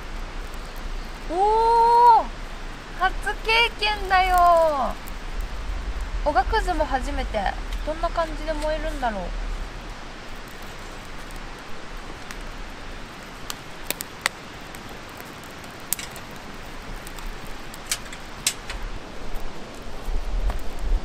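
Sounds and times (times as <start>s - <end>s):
campfire crackling: 0.0s - 21.0s.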